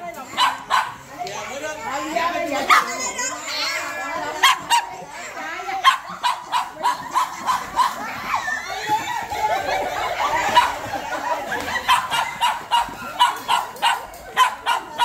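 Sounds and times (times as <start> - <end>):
children chattering: 0.0 - 15.0
dog barking: 0.4 - 1.0, 2.7 - 2.9, 4.4 - 4.9, 5.8 - 8.0, 11.9 - 15.0
people laughing: 3.6 - 15.0.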